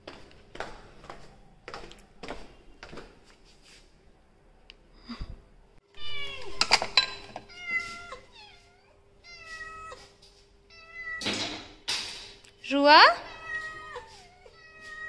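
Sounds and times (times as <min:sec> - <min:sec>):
cats meowing: 0:06.0 - 0:11.4, 0:13.2 - 0:15.0.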